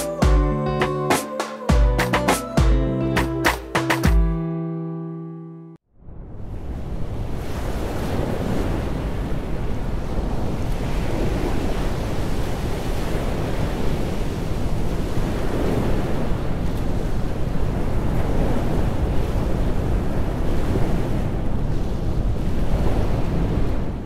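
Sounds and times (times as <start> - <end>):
wind buffeting microphone: 6.1 - 24.0
ship's wake churning sea: 6.4 - 24.0.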